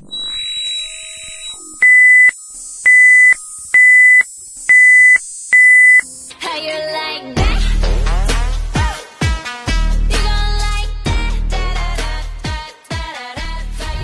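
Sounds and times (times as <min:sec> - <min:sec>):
high electronic beeps: 0:00.0 - 0:06.0.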